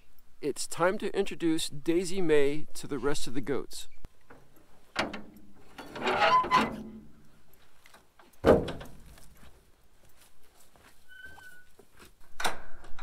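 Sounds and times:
metal door scraping: 5.0 - 7.1.

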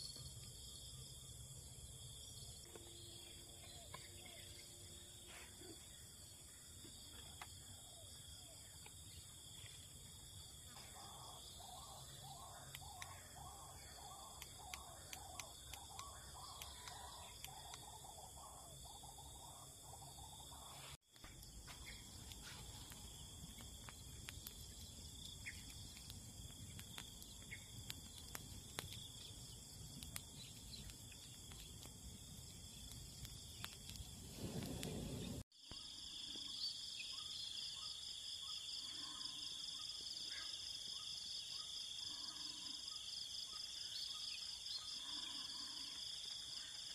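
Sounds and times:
high-pitched insect chorus: 0.0 - 46.9
campfire crackling: 6.2 - 35.5
birds chirping: 7.7 - 20.8.

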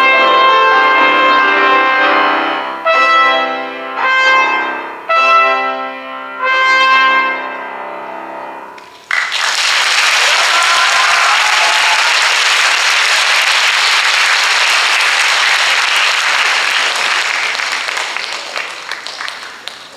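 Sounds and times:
audience applauding: 8.8 - 19.9.

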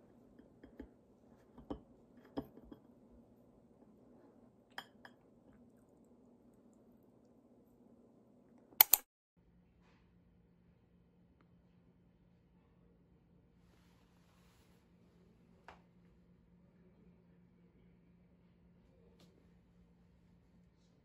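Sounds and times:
faint steady hum: 0.0 - 21.0
fork clicking on ceramic plate: 8.8 - 9.0
loud sharp double click: 8.8 - 9.0.

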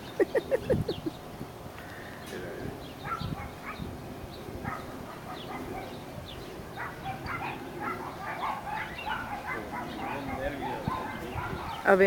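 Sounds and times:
dogs yapping: 3.0 - 12.0.

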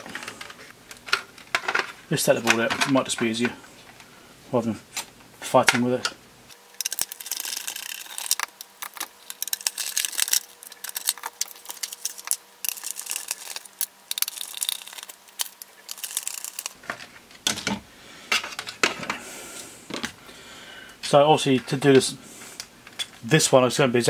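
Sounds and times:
plastic housing clicks and rattles: 6.8 - 16.8.

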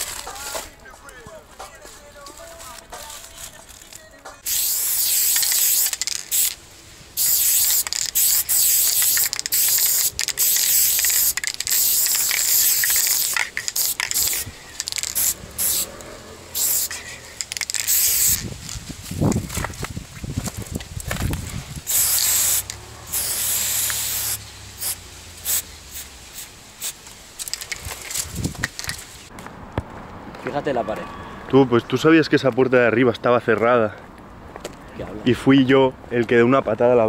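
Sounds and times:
spray paint can hissing: 4.4 - 19.8, 21.1 - 29.3.

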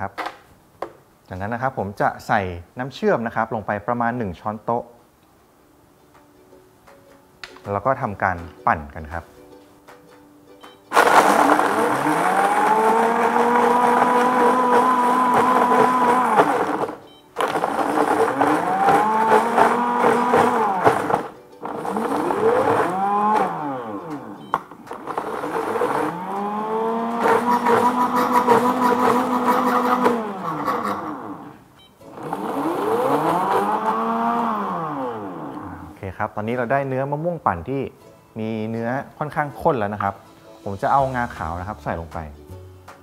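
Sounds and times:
blender crushing ice: 10.9 - 35.9.

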